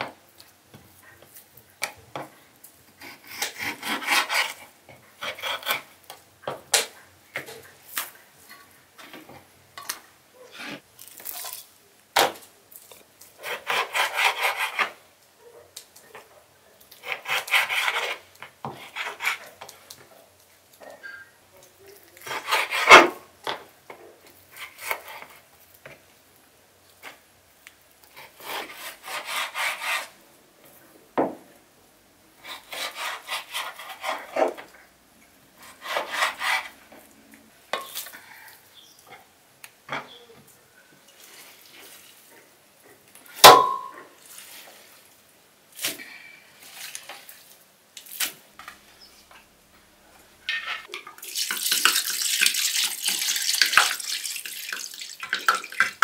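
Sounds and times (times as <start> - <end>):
knife sawing through meat: 3.1 - 4.6, 13.4 - 14.9, 17.0 - 18.2, 28.2 - 30.1, 32.4 - 34.4, 35.6 - 36.8.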